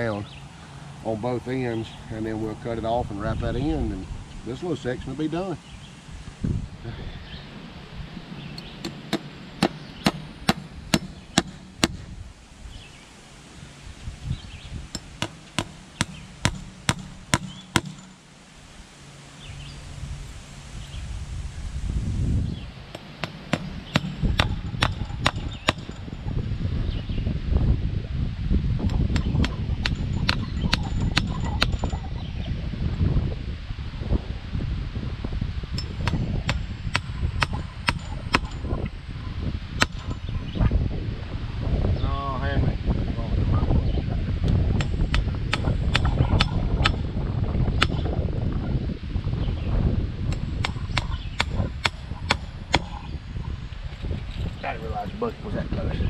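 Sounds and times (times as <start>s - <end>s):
hammer striking metal staples: 8.8s - 12.0s, 15.0s - 18.2s, 22.9s - 26.1s.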